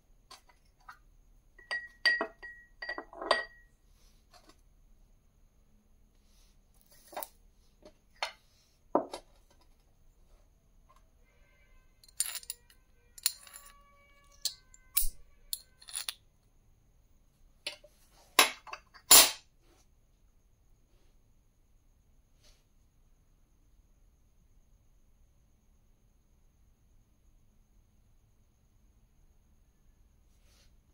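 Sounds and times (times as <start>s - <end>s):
glass tumbler knocking on marble: 1.6s - 3.6s
coin clinking on marble: 12.0s - 16.2s.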